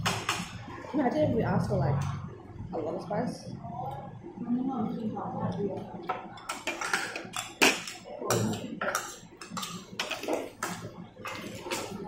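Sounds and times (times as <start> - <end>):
spoon clinking against bowls: 6.4 - 12.0.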